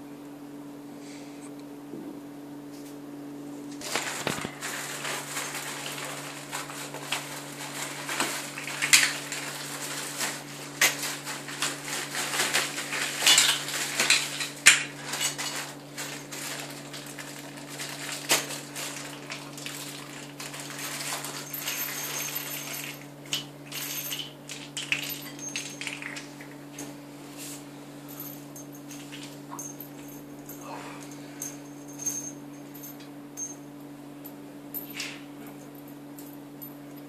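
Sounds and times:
plastic wrapping crinkling: 3.8s - 22.7s.

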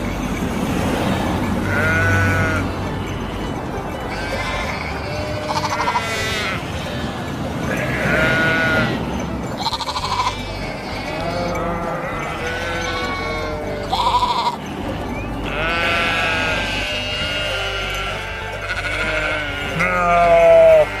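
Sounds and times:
sheep bleating: 1.6s - 2.7s, 4.1s - 9.0s, 9.6s - 14.6s, 15.4s - 21.0s.

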